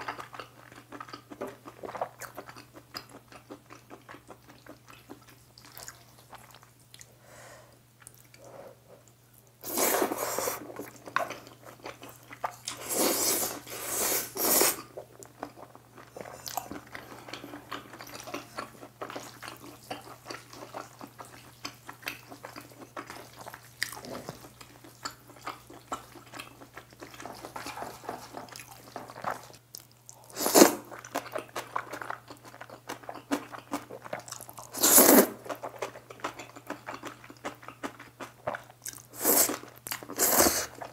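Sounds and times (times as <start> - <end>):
wet chewing: 0.0 - 7.1, 14.7 - 40.9
loud noodle slurps: 9.6 - 10.7, 12.8 - 14.9, 30.4 - 30.9, 34.7 - 35.4, 39.2 - 40.8.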